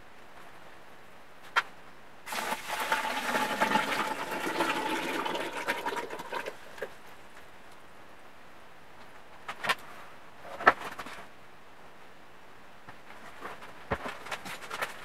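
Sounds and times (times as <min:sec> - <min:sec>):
slurry pouring and splashing: 0:02.3 - 0:06.6.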